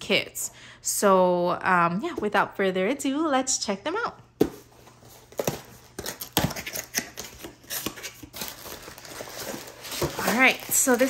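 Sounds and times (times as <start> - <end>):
cardboard crackling and scraping: 4.5 - 11.0.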